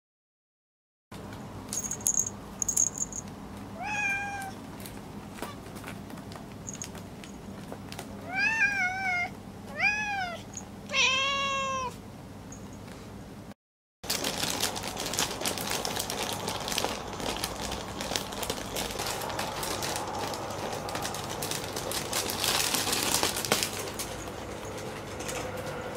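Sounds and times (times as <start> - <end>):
cat meowing: 3.8 - 4.6, 8.2 - 12.0.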